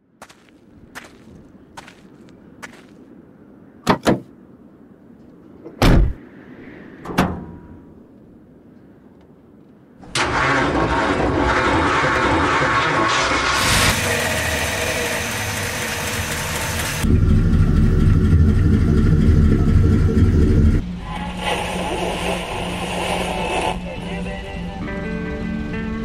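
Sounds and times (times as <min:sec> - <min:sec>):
car engine starting and running: 0:10.0 - 0:26.0.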